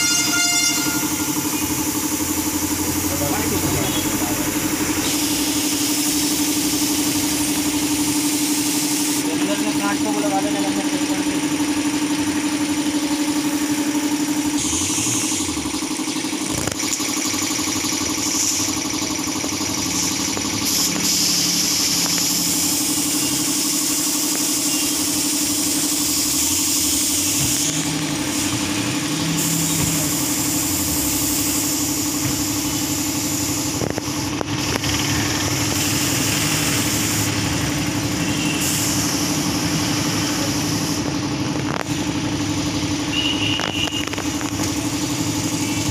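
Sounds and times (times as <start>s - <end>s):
motor humming: 0.0s - 8.2s.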